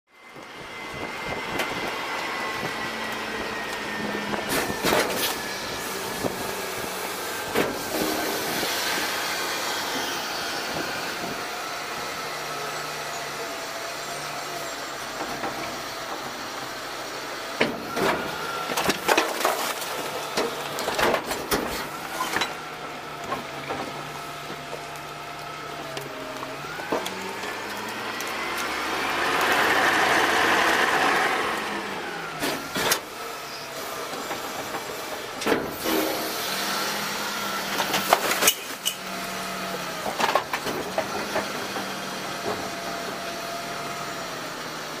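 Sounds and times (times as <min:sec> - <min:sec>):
hydraulic arm working: 0:00.9 - 0:44.7
garbage truck engine revving: 0:01.5 - 0:45.0
trash clattering into hopper: 0:17.6 - 0:22.6.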